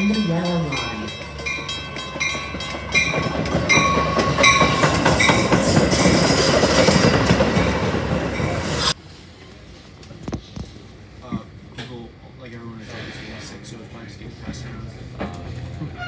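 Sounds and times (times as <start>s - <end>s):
bell ringing: 0.0s - 7.7s
train wheels rumbling past: 0.0s - 9.5s
high wheel squeal: 3.0s - 9.0s.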